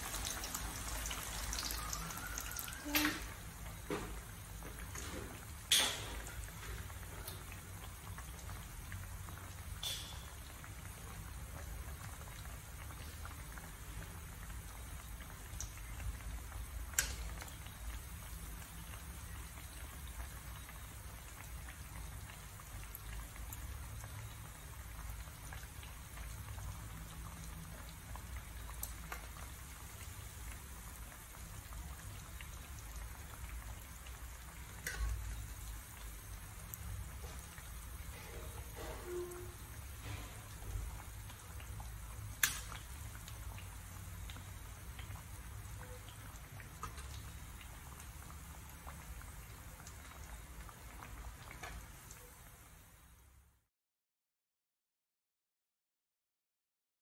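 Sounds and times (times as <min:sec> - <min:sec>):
food sizzling in frying oil: 0:00.0 - 0:53.5
metal tongs clicking against pan: 0:34.8 - 0:35.2, 0:42.4 - 0:42.8.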